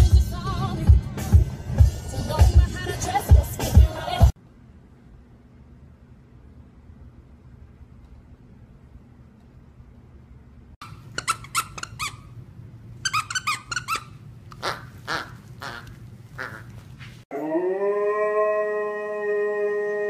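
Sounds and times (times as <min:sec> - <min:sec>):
squeaky toy squeaking: 0:10.8 - 0:12.3, 0:13.0 - 0:16.6
dog howling: 0:17.3 - 0:20.0.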